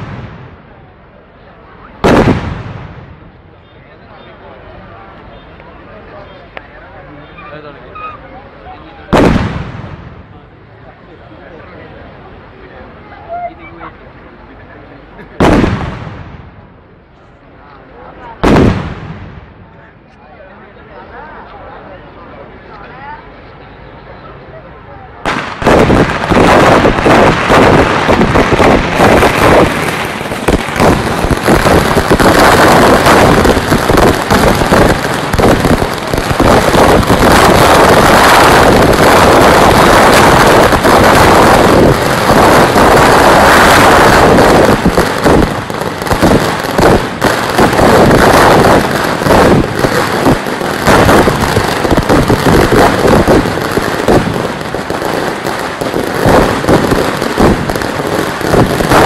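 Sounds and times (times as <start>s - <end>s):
firecrackers banging and crackling: 0.0s - 5.7s, 8.9s - 10.6s, 15.1s - 19.9s, 25.2s - 59.0s.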